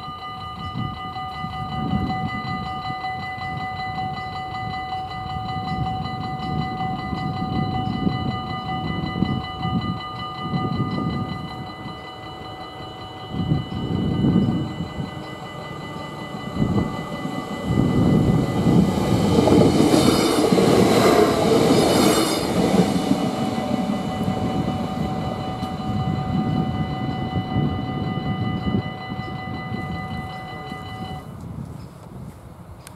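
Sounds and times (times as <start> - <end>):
crossing warning bell ringing: 0.0 - 31.4
train rumble and wheel noise: 0.0 - 32.9.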